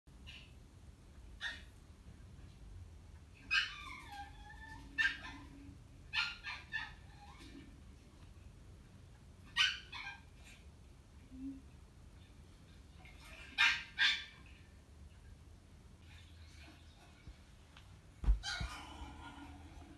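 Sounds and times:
small dog yelping and whining: 1.4 - 1.7, 3.4 - 7.6, 9.5 - 10.6, 13.2 - 14.6, 18.3 - 19.0.

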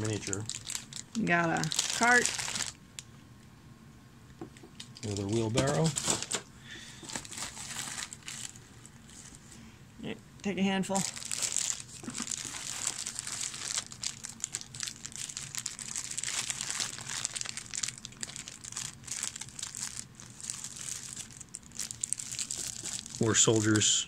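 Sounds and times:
plastic bags crinkling: 0.0 - 2.8, 4.8 - 9.4, 11.0 - 23.9.

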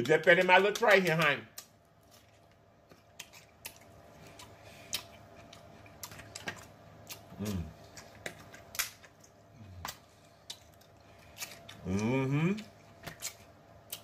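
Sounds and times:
crab shells cracking: 0.0 - 12.0
person humming: 7.4 - 7.7, 11.8 - 12.6.

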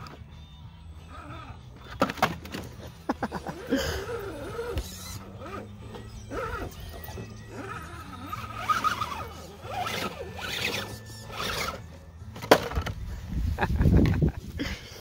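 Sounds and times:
small electric motor whining: 3.4 - 12.2.

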